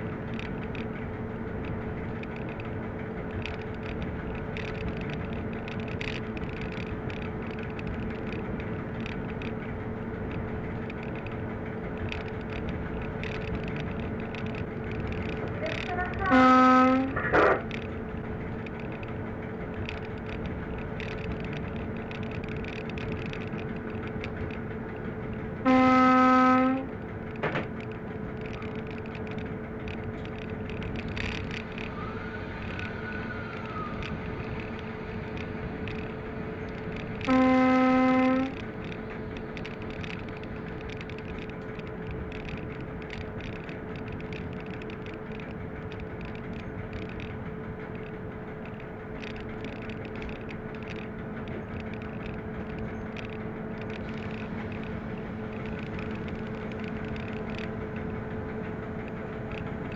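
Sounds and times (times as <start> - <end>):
locomotive engine drone: 0.0 - 59.9
locomotive horn blasts: 16.2 - 17.5, 25.6 - 26.9, 37.2 - 38.6.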